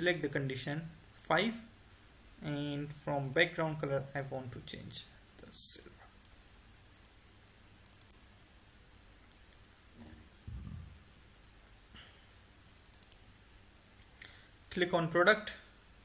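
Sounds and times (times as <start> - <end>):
computer mouse clicking: 6.2 - 7.2, 7.8 - 8.3, 9.3 - 10.2, 12.8 - 13.3
soft low thump: 10.5 - 11.0.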